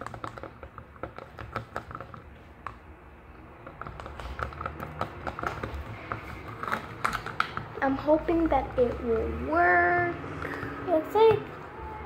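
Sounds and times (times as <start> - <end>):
tool tapping plastic cup: 3.6 - 7.7.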